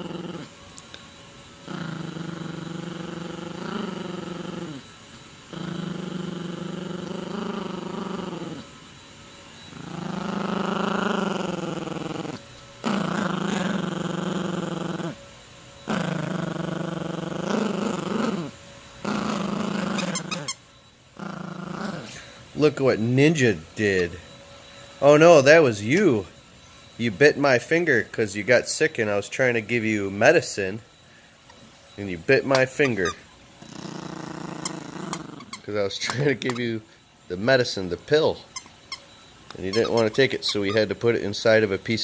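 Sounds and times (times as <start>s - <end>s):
puppy growling: 0.0s - 8.8s, 9.6s - 24.3s, 25.0s - 26.3s, 31.5s - 42.0s.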